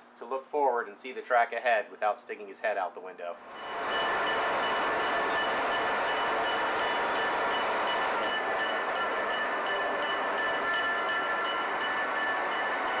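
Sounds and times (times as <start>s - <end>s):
locomotive rushing noise: 3.4s - 13.0s.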